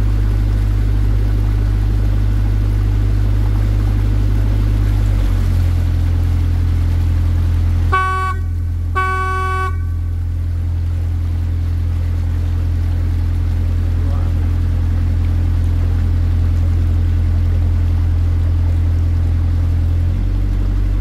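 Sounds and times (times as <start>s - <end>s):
boat engine droning: 0.0s - 21.0s
boat horn toots: 7.8s - 10.5s.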